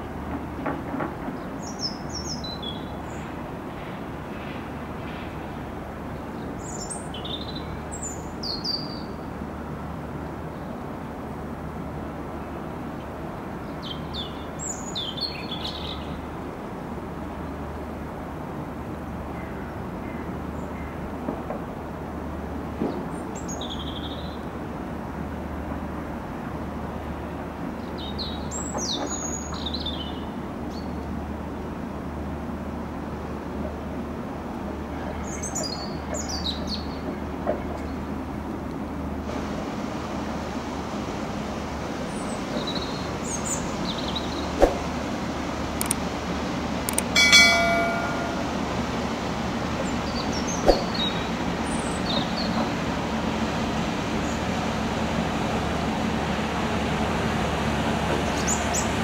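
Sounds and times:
ship engines droning: 44.4s - 51.6s
clicks: 45.8s - 46.0s, 46.9s - 48.5s
ringing chime: 47.1s - 48.8s.

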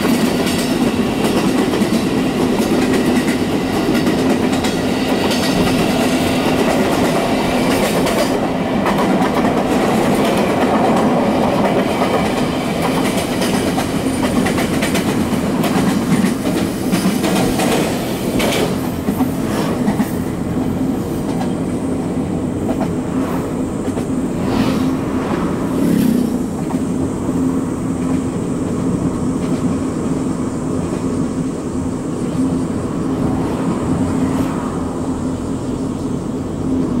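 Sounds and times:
wheels clacking over rail joints: 0.0s - 20.2s.

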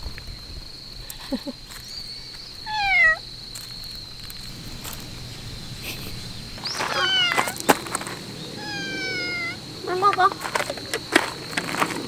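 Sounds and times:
cat meowing: 2.7s - 3.2s, 6.7s - 7.6s, 8.6s - 9.6s.

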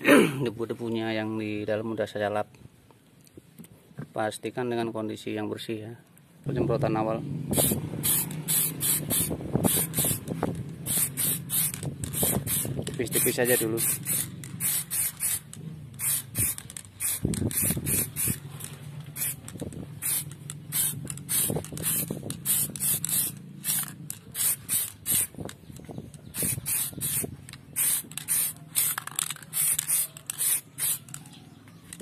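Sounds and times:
aerosol can spraying bursts: 7.5s - 25.5s, 26.3s - 31.2s.

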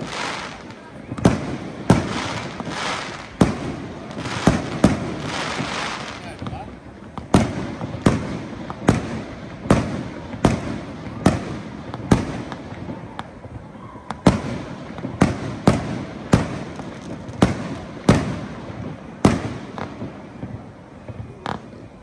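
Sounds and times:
firework shells bursting: 0.0s - 13.4s.

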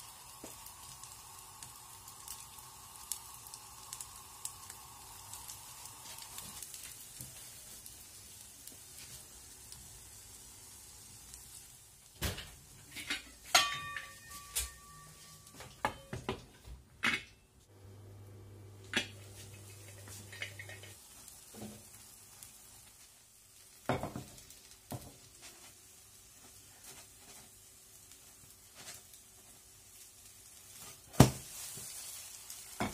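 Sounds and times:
potato frying in a pan: 0.0s - 15.6s, 17.7s - 32.9s
metal lid clanking on pan: 13.0s - 14.7s
pan knocking on stove grate: 13.1s - 15.0s.

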